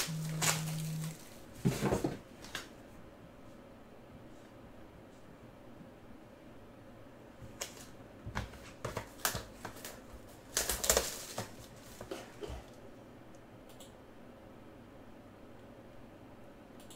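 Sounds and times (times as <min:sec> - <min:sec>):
plastic shrink-wrap crinkling and tearing: 0:00.0 - 0:01.4, 0:09.2 - 0:12.3.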